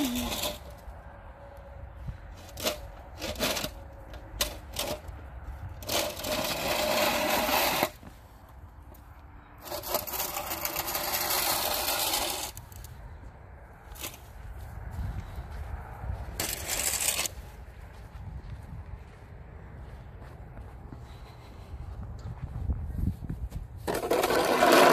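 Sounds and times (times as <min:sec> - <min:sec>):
snow shovel scraping pavement: 0:00.0 - 0:00.8, 0:02.4 - 0:05.0, 0:05.7 - 0:08.2, 0:09.6 - 0:12.6, 0:16.4 - 0:17.4, 0:23.8 - 0:24.9.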